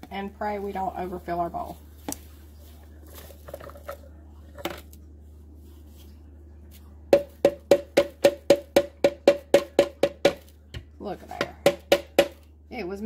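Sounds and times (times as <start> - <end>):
crumbs rustling: 0.0 - 7.4
container tapped with hollow knocks: 7.2 - 12.4.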